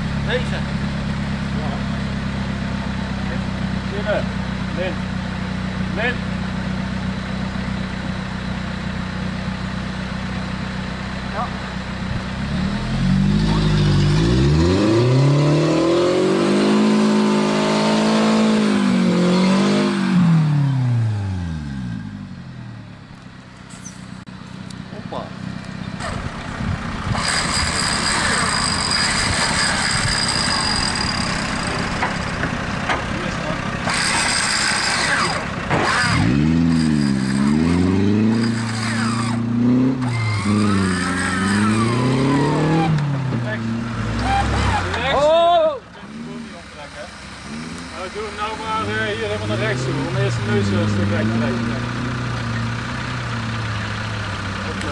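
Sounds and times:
off-road engine revving hard: 0:11.2 - 0:22.6, 0:25.9 - 0:54.9.

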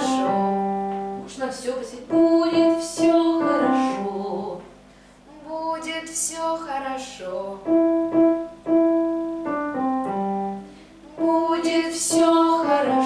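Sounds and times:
piano chords: 0:00.0 - 0:04.7, 0:07.4 - 0:13.0
woman singing: 0:00.0 - 0:04.7, 0:05.3 - 0:07.9, 0:11.0 - 0:13.0.

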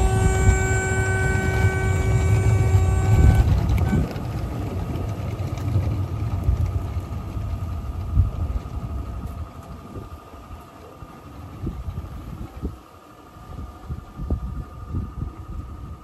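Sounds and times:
train wheels rolling on track: 0:00.0 - 0:14.5
model locomotive motor whine: 0:00.0 - 0:16.0.

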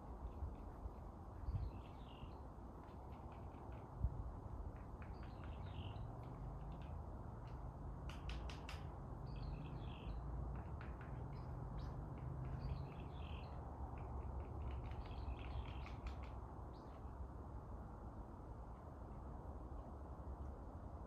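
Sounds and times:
low wind rumble: 0:00.0 - 0:21.0
wind through leaves: 0:00.0 - 0:21.0
songbirds chirping and singing: 0:09.2 - 0:16.2.

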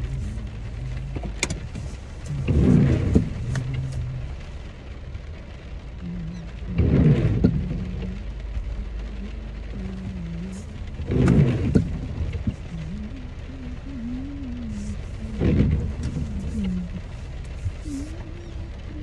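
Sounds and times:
car road rumble: 0:00.0 - 0:19.0.

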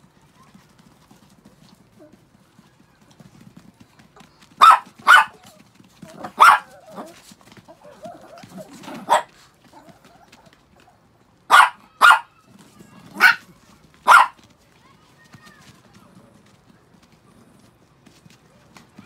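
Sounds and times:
small dogs yapping: 0:04.2 - 0:12.4, 0:13.0 - 0:14.4.

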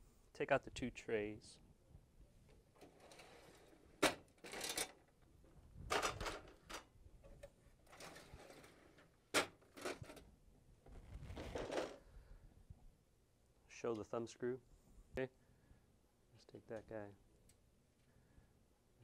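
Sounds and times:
plastic tray sliding scrapes: 0:02.8 - 0:03.8, 0:07.9 - 0:09.0.

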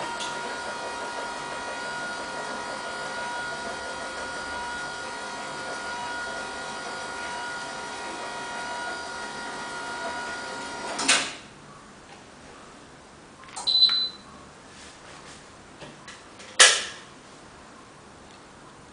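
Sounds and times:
short high electronic beep: 0:13.7 - 0:14.2.

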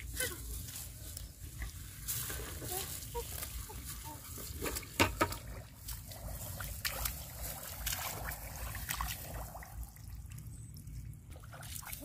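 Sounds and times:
grass rustling: 0:00.0 - 0:09.6
footsteps wading in muddy water: 0:00.0 - 0:12.0.

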